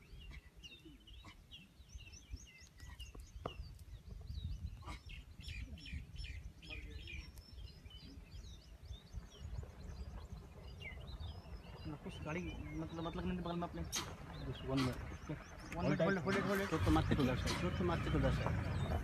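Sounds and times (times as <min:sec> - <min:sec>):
small birds chirping: 0:00.0 - 0:19.0
low steady rumble: 0:08.2 - 0:19.0.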